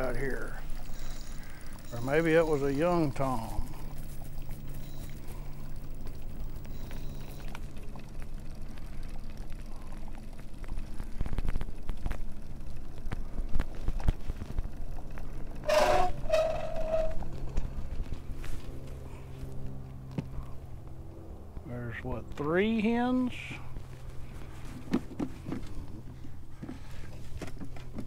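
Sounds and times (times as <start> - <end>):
motor scooter engine running: 0.0 - 21.5
high-pitched squeal: 15.6 - 17.2.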